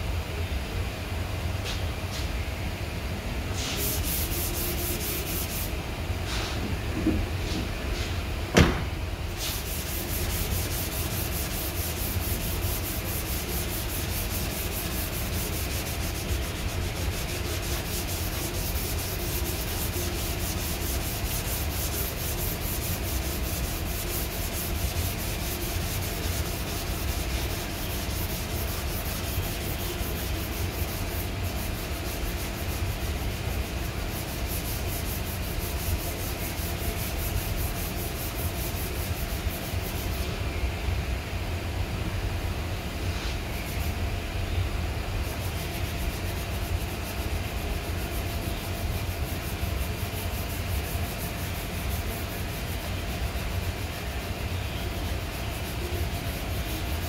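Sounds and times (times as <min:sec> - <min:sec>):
sanding body putty: 0:03.6 - 0:05.7, 0:09.4 - 0:40.3, 0:45.2 - 0:57.0
sharp knock: 0:08.5 - 0:08.9.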